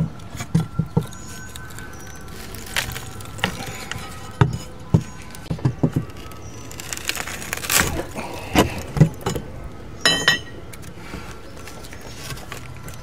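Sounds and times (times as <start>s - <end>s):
wood trim cracking: 0.2s - 9.5s
pry bar knocking and clinking: 10.0s - 10.6s.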